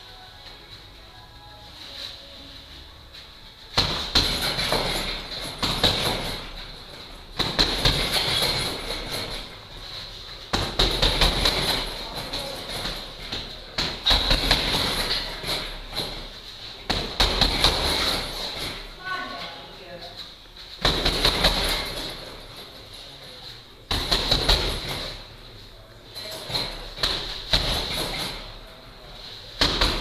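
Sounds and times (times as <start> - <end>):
gloved punches on heavy bag: 3.7 - 6.7, 7.4 - 9.6, 10.5 - 16.3, 16.9 - 18.9, 20.8 - 22.3, 23.9 - 25.2, 26.6 - 28.5, 29.6 - 30.0.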